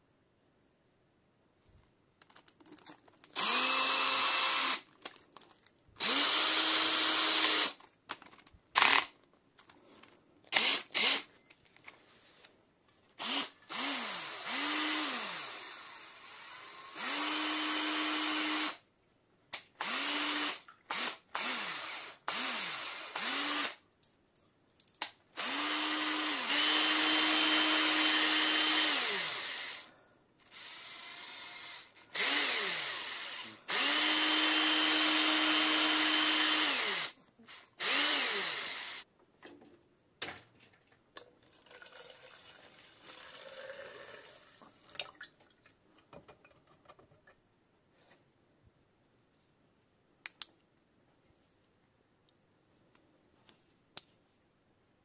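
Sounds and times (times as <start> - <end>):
cordless drill motor whining: 3.4 - 4.8, 6.0 - 7.8, 10.5 - 11.3, 13.2 - 18.8, 25.4 - 39.0.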